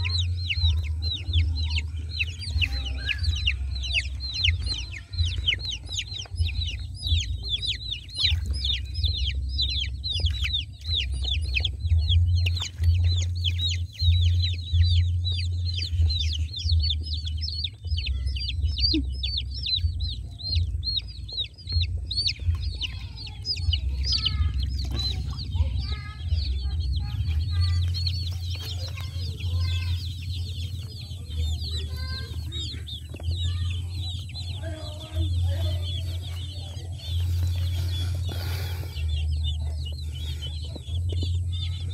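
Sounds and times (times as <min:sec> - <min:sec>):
chicks peeping: 0:00.0 - 0:41.9
low rumble: 0:00.0 - 0:41.9.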